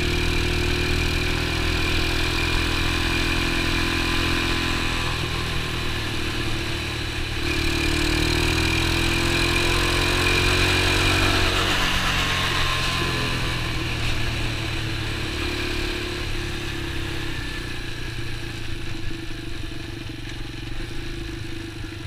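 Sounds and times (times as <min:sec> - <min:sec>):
small motorbike engine running: 0:00.0 - 0:22.0.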